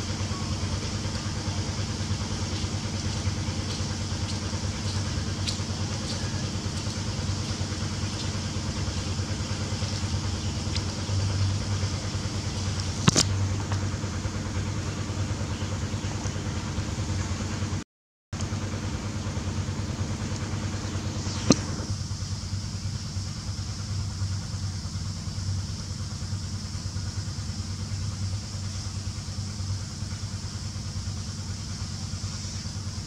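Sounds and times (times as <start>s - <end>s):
low motor hum: 0.0s - 17.8s, 18.4s - 33.0s
sharp click: 13.0s - 13.4s, 21.3s - 21.9s.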